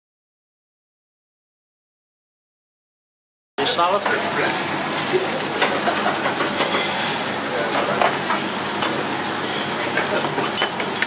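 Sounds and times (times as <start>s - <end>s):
kitchen sizzling and hiss: 3.6s - 11.0s.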